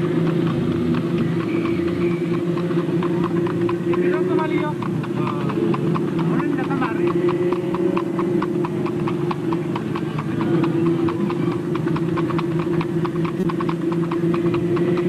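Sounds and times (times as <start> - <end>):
horse hooves clip-clopping on pavement: 0.0 - 15.0.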